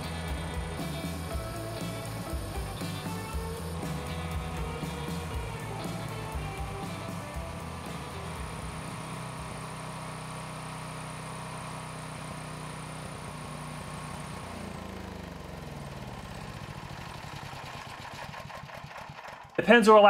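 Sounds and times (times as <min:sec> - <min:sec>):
generator engine running: 0:00.0 - 0:20.0.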